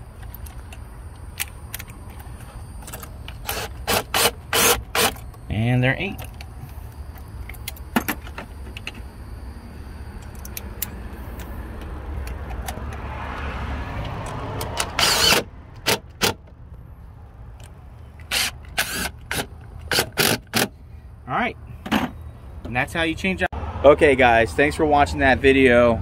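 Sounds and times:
cordless power tool spinning: 3.4 - 5.2, 15.0 - 15.4.

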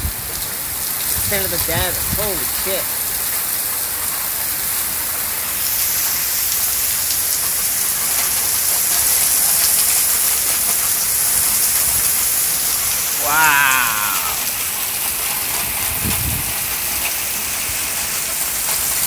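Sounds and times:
heavy rain pouring: 0.0 - 19.0
gusting wind: 15.9 - 16.6.

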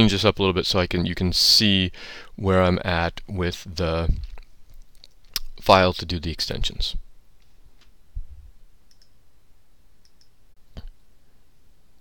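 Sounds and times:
soft low thump: 8.2 - 8.5
computer mouse clicks: 8.9 - 9.2, 10.0 - 10.3.

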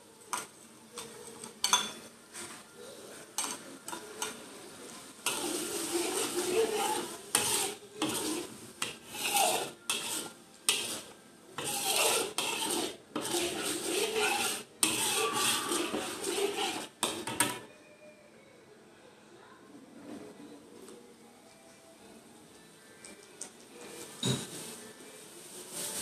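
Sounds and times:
metal spatula scraping wok: 5.2 - 17.7.

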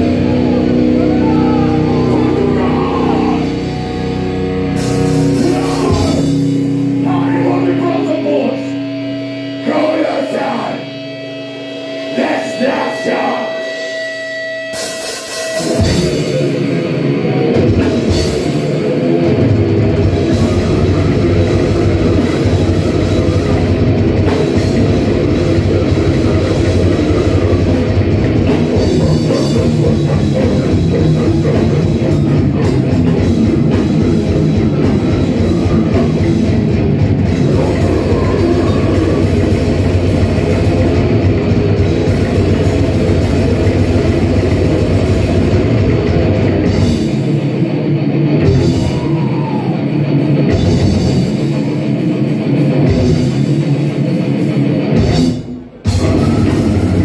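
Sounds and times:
death metal band playing: 0.0 - 57.0.

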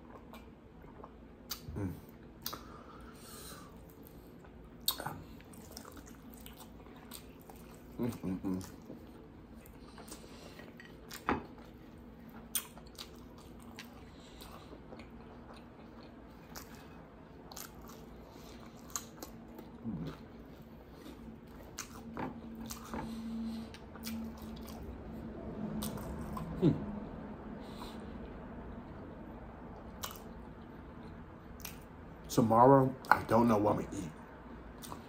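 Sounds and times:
chewing and biting food: 3.7 - 25.1, 25.7 - 26.6, 29.8 - 32.0
wet mouth clicks and crunches: 30.0 - 30.3.

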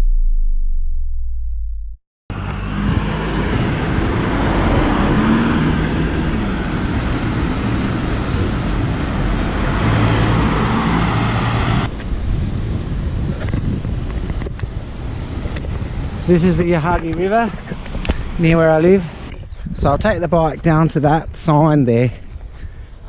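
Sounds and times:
car traffic: 2.3 - 23.0
wind rushing over microphone: 2.3 - 23.0.

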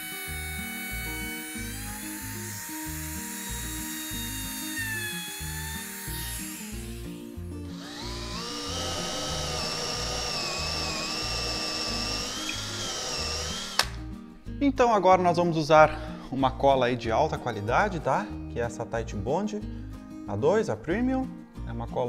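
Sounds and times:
cordless drill boring into wood: 0.0 - 14.0
trim router cutting wood: 0.0 - 14.0
background music with steady beat: 0.2 - 22.0.

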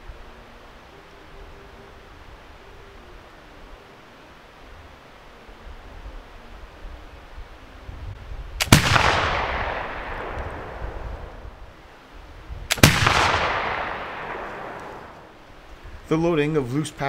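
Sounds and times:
rifle shots: 8.6 - 11.5, 12.7 - 15.3
flintlock crack: 8.6 - 11.6, 12.7 - 15.8.

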